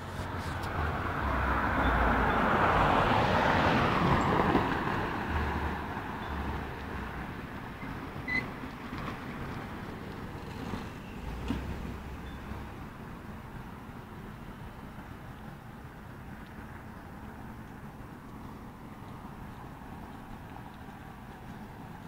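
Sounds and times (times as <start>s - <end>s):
vehicle passing by: 0.0s - 7.1s
background traffic noise: 0.0s - 22.0s.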